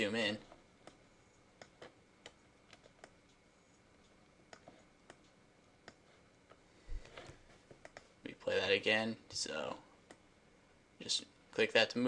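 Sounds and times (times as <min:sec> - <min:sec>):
computer mouse clicks: 0:01.6 - 0:03.4, 0:04.0 - 0:06.6, 0:07.2 - 0:08.1.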